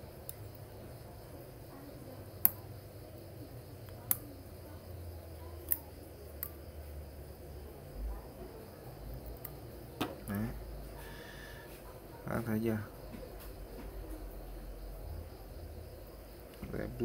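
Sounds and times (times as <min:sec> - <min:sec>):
sharp metallic clicks: 0:02.4 - 0:02.8, 0:03.8 - 0:04.5, 0:05.6 - 0:06.6.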